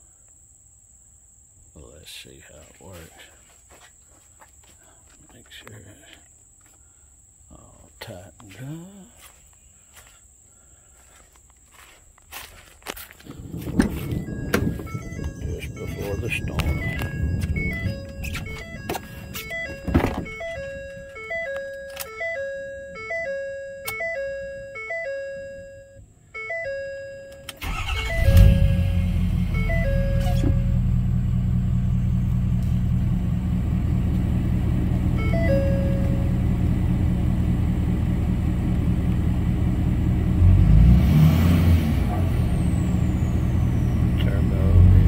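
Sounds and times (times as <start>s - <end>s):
diesel engine cranking and idling: 13.2s - 24.2s, 27.5s - 45.0s
dashboard warning chime: 13.5s - 30.9s, 35.1s - 36.6s.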